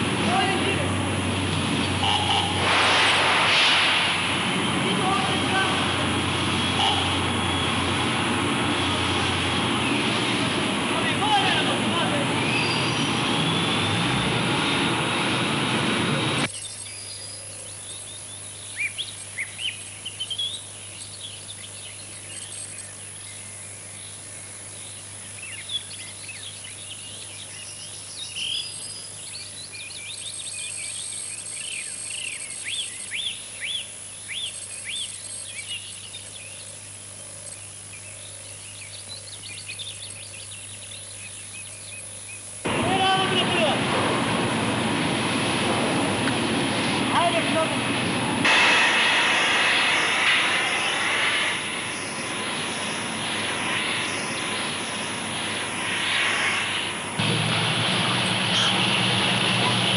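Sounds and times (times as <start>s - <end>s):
birds chirping: 0.0s - 3.4s, 4.0s - 48.4s, 49.7s - 59.9s
loud noise: 0.0s - 16.5s, 42.6s - 59.9s.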